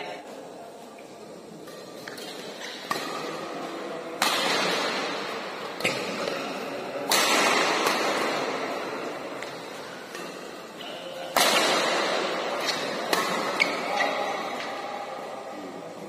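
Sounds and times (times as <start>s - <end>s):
rackets striking shuttlecock: 1.7s - 3.5s, 4.2s - 14.8s.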